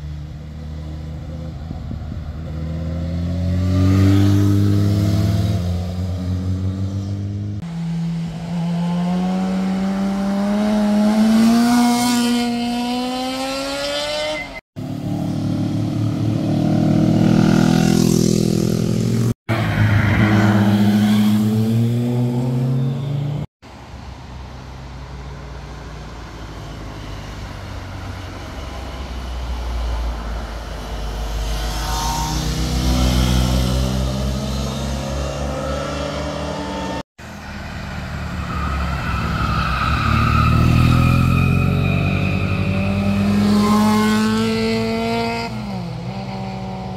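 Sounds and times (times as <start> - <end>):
motorcycle engine accelerating: 0.8 - 19.4, 40.0 - 46.9
cars accelerating past: 2.2 - 23.5, 24.9 - 46.9.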